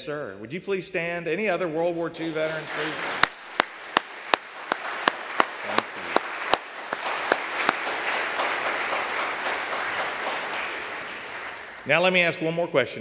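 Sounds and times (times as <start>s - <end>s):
sharp close claps: 2.2s - 12.3s
congregation applauding: 2.2s - 12.4s.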